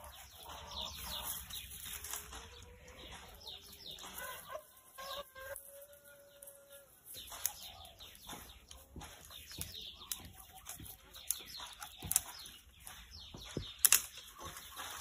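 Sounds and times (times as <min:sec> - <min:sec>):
dry brushwood rustling and snapping: 0:01.0 - 0:04.2, 0:07.0 - 0:15.0.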